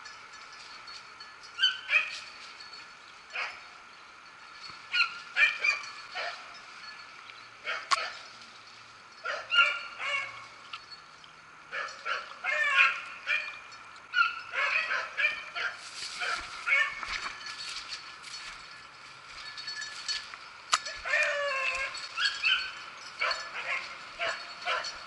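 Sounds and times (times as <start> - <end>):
hounds baying: 1.5 - 3.9, 4.8 - 8.4, 9.0 - 10.8, 11.7 - 18.5, 20.8 - 25.0.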